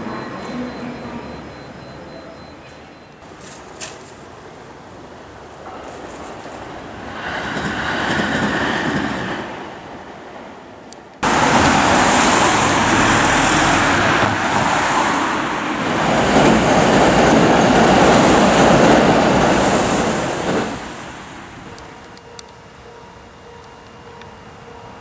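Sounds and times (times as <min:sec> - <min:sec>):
train passing: 0:00.0 - 0:25.0
cars passing close by: 0:11.2 - 0:21.7.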